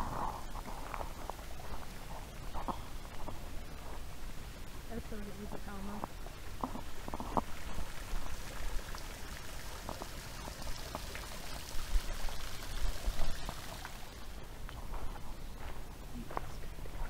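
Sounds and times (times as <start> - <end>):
water splashing over spillway: 7.4 - 14.4.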